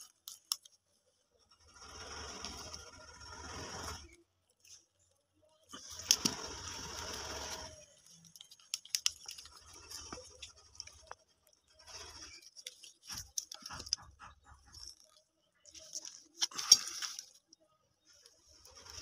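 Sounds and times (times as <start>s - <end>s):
small clicks and scrapes: 0.0s - 19.0s.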